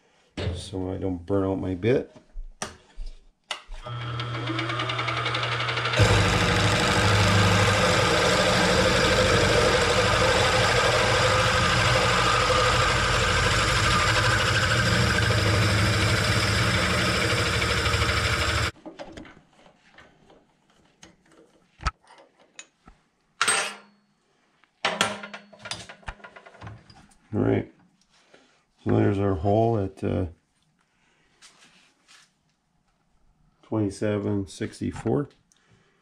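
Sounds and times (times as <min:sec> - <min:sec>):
drill motor hum and cutting: 0:03.8 - 0:18.7.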